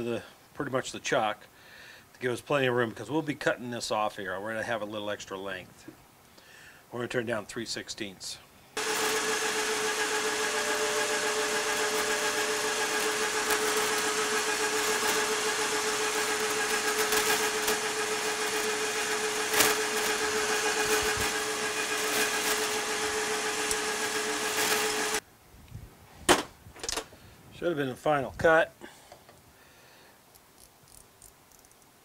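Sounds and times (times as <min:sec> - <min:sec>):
hiss of metal cutting: 0:08.8 - 0:25.2
metal lathe running: 0:08.8 - 0:25.2.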